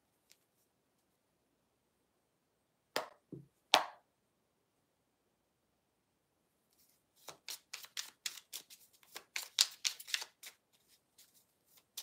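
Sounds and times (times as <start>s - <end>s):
cards being shuffled: 6.8s - 12.0s.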